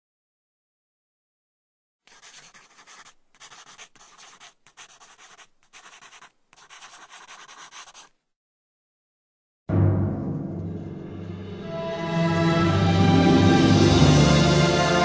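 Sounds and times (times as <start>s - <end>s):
scratchy writing on paper: 2.1s - 8.2s.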